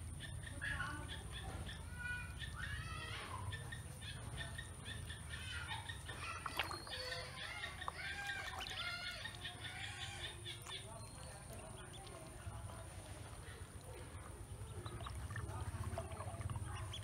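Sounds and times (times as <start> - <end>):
ducklings peeping: 0.0 - 17.0
steady low hum: 6.8 - 17.0.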